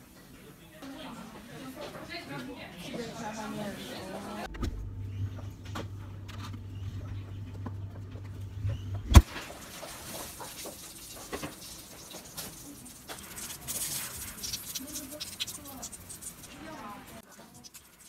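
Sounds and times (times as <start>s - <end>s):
refrigerator hum: 4.1s - 17.9s
meat skewers sizzling: 9.2s - 18.0s.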